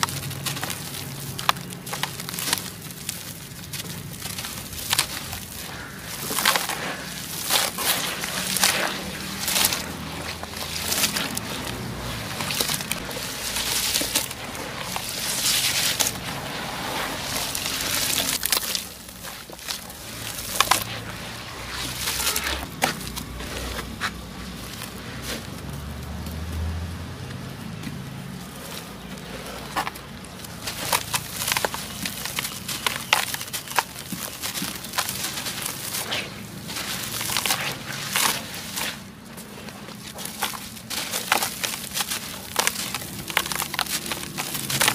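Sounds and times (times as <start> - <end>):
chalky blocks crushed into water: 28.8 - 44.9.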